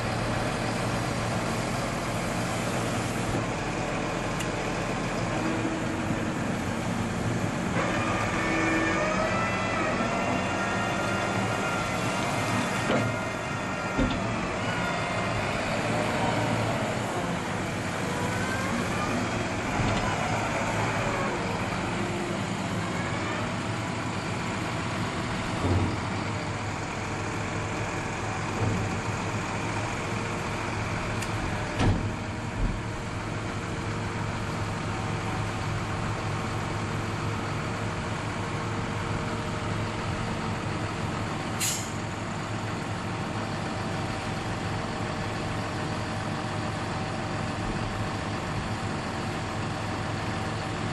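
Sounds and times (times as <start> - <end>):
tractor engine running: 0.0 - 50.9
short sharp hiss: 41.6 - 42.0.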